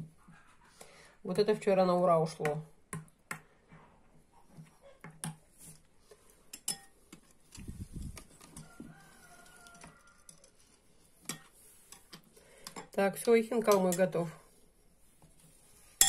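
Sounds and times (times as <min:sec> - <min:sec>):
spoons clinking against glass bowls: 0:06.5 - 0:07.0.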